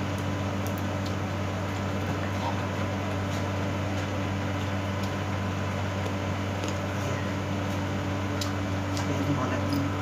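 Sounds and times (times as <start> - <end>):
low mechanical hum: 0.0 - 10.0
soft chewing clicks: 7.7 - 10.0.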